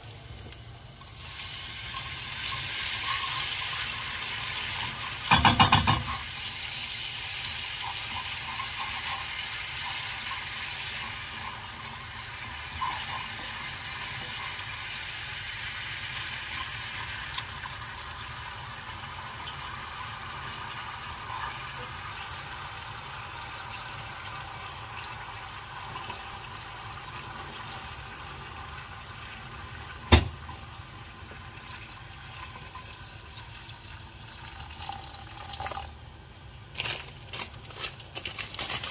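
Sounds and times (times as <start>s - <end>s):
sharp knock: 30.1s - 30.4s.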